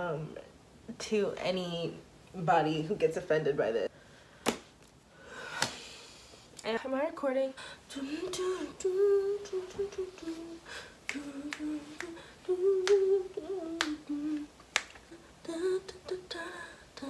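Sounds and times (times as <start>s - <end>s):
woman humming: 7.9s - 14.5s
finger snaps: 11.0s - 12.2s, 12.8s - 15.1s.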